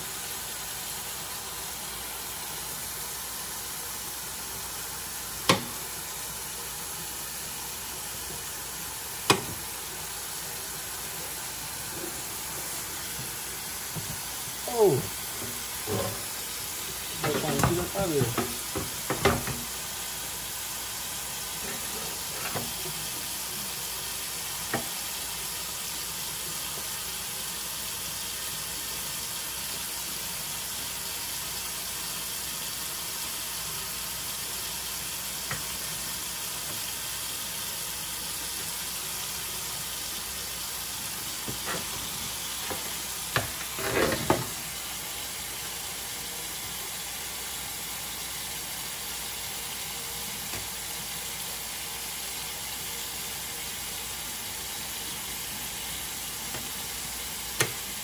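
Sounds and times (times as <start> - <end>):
tap running into steel sink: 5.4 - 5.9, 9.2 - 9.7, 13.0 - 14.3, 17.0 - 19.8, 21.7 - 23.3, 24.7 - 25.0, 35.5 - 35.7, 41.4 - 44.6, 56.5 - 56.8, 57.6 - 57.9.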